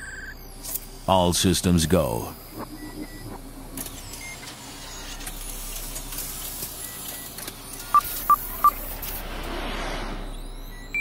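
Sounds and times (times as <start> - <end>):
electronic blips and chirps: 0.0 - 9.2, 9.8 - 11.0
short loud beeps: 10.5 - 11.0.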